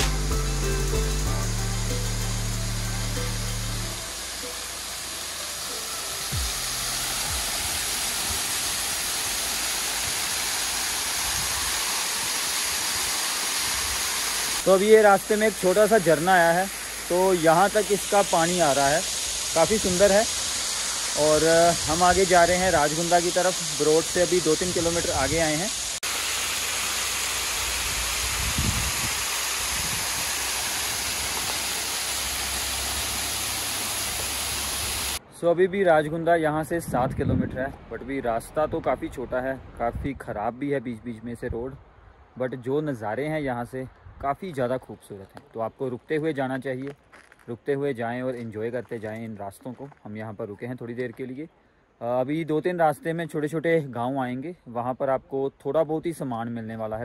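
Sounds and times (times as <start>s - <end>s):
small waterfall splashing: 2.8s - 35.2s.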